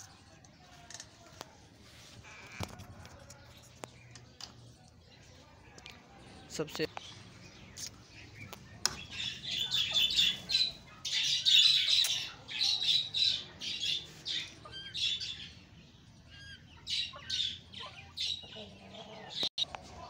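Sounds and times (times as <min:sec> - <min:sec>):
birds squawking: 0:02.1 - 0:02.8, 0:07.0 - 0:15.6, 0:16.3 - 0:19.7.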